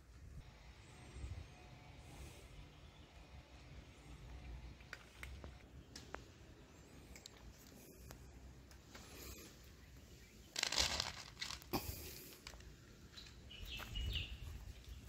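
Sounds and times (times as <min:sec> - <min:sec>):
kibble rattling onto paper plate: 0:10.6 - 0:11.7.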